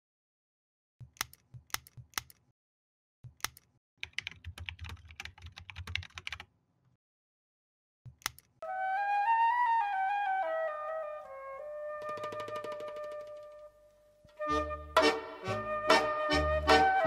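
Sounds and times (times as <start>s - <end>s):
computer mouse clicks: 1.0s - 2.5s, 3.3s - 4.4s, 8.1s - 8.6s
typing on computer keyboard: 3.3s - 6.5s
flute melody: 8.6s - 17.0s.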